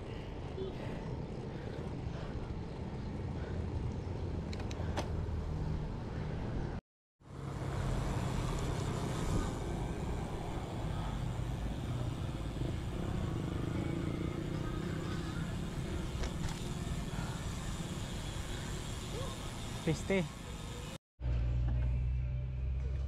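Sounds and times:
vehicle engine running: 7.3s - 23.0s.

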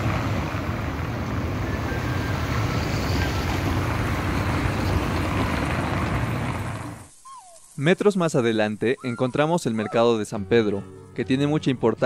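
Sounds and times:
low traffic rumble: 0.0s - 7.2s.

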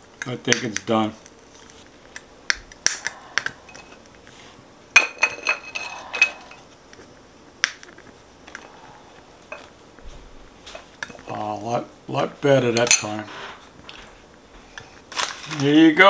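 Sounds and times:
metal fork clinking on ceramic plate: 12.8s - 13.2s.

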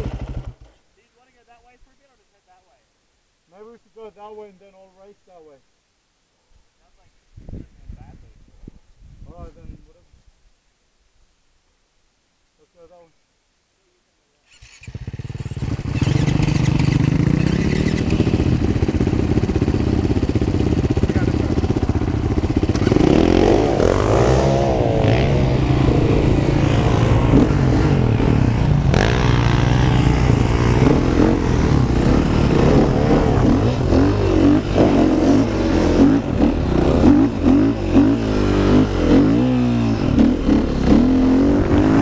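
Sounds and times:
dirt bike engine revving: 0.0s - 0.7s, 14.5s - 42.0s.

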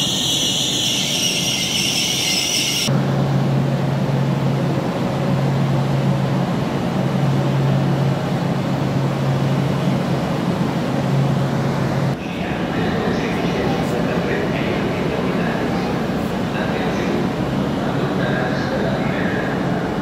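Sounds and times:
train wheels squealing: 0.0s - 2.9s
standing train rumble: 0.0s - 20.0s.

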